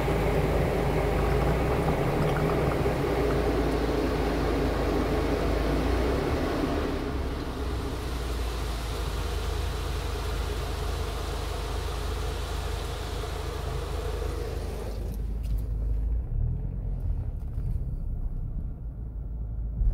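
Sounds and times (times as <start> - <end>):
water spraying over car: 0.0 - 15.5
car low rumble: 0.0 - 19.9.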